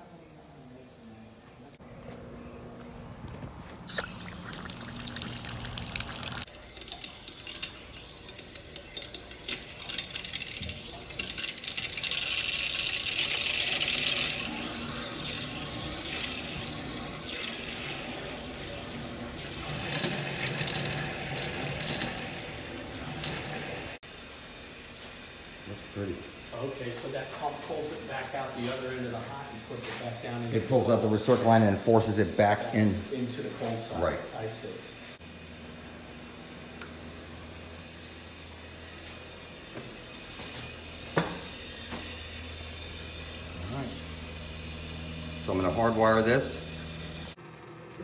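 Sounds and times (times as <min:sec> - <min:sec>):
water running through pipes: 0:03.9 - 0:24.0
valves clicking and knocking: 0:05.1 - 0:14.4, 0:19.7 - 0:23.8.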